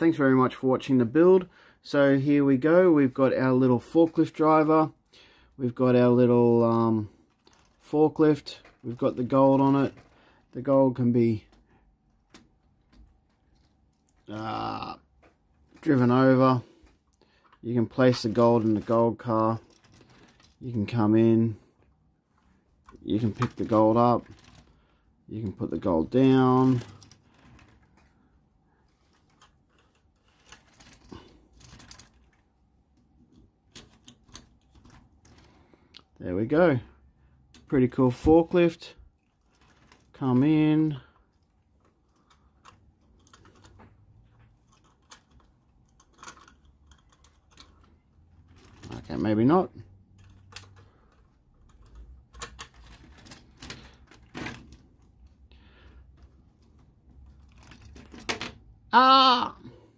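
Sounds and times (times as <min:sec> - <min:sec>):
plastic toy bricks clicking: 0:44.6 - 0:49.0.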